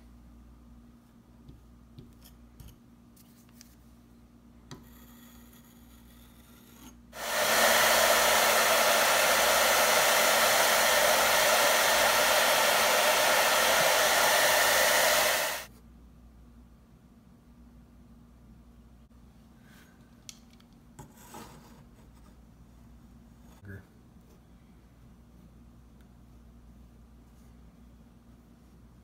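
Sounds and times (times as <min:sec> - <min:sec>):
hair dryer blowing: 0:07.2 - 0:15.7.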